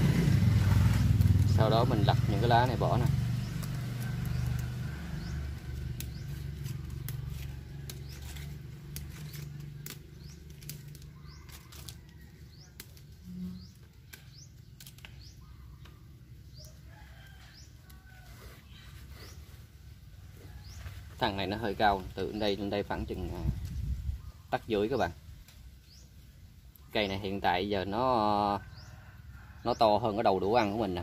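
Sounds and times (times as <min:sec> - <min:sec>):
leaves snapping and rustling: 0:00.3 - 0:16.0, 0:20.8 - 0:27.0.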